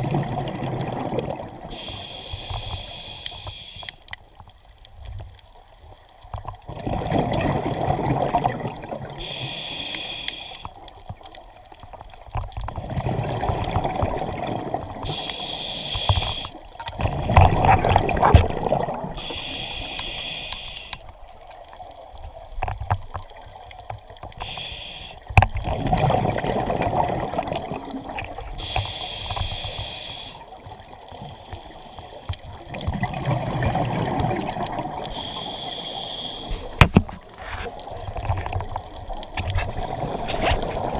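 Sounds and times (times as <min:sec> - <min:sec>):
exhaled air bubbling: 0:00.0 - 0:03.7, 0:06.5 - 0:10.7, 0:12.3 - 0:21.6, 0:22.2 - 0:40.9
regulator hissing: 0:01.7 - 0:04.0, 0:15.1 - 0:16.6, 0:19.2 - 0:21.0, 0:24.4 - 0:25.2, 0:28.6 - 0:30.4.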